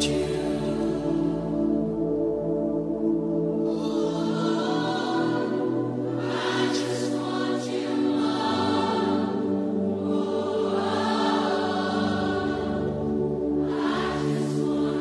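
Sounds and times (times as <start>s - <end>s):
person singing: 0.0s - 1.7s
worship band sustained chords: 0.0s - 15.0s.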